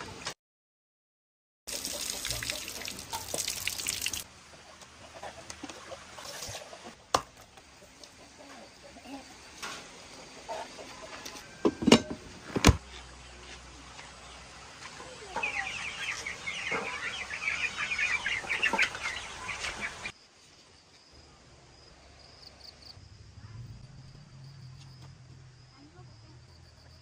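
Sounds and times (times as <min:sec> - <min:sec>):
chickens cheeping and clucking: 0:04.4 - 0:20.2
faint insect trill: 0:20.2 - 0:27.0.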